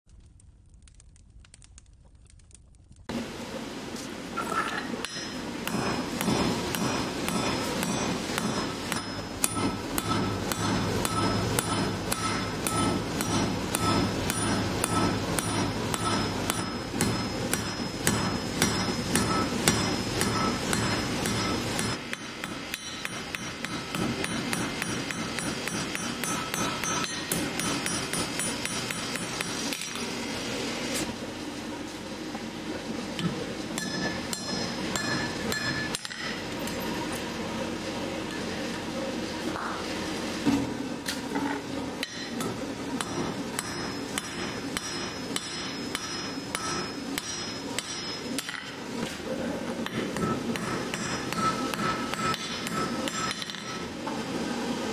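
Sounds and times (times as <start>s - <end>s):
hammer striking steel on anvil: 4.5s - 30.2s, 33.2s - 36.5s, 42.0s - 48.8s, 49.8s - 53.9s.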